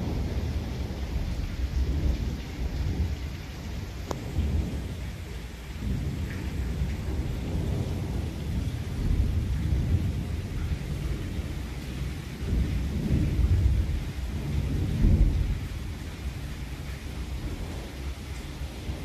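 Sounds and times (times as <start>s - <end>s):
heavy rain: 0.0s - 19.0s
thunder rumbling: 0.0s - 19.0s.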